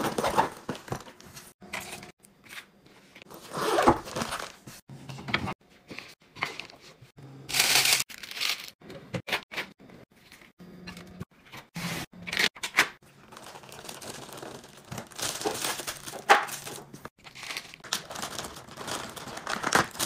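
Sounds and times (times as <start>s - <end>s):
packaging rustling: 3.3s - 4.8s, 13.2s - 20.0s.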